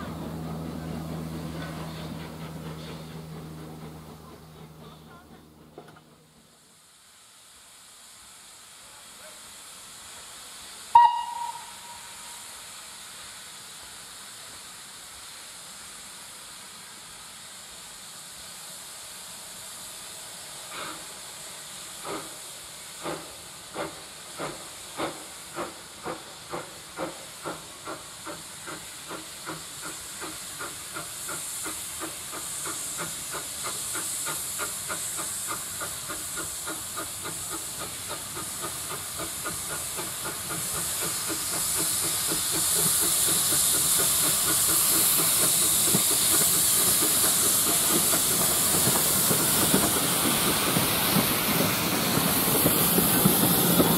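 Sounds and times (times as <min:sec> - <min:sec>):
locomotive exhaust beats: 0:00.0 - 0:06.3
steam hissing: 0:00.0 - 0:53.9
steam whistle blast: 0:10.9 - 0:12.8.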